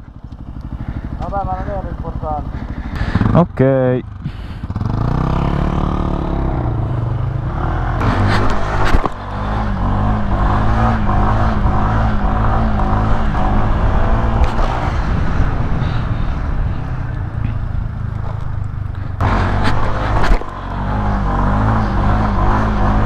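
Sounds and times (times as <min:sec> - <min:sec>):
scooter engine pulling away: 0:04.1 - 0:08.1.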